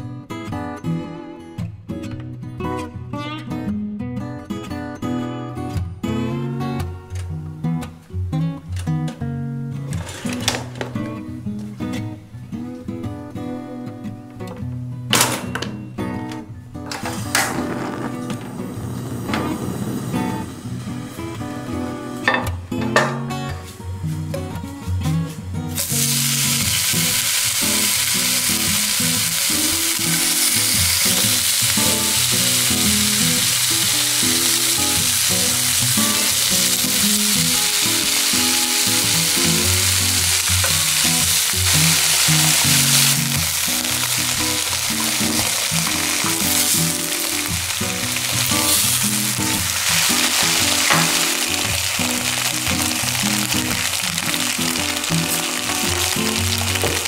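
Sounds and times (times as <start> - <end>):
background music: 4.8 - 57.0
ham sizzling in a frying pan: 16.9 - 22.3, 25.7 - 57.0.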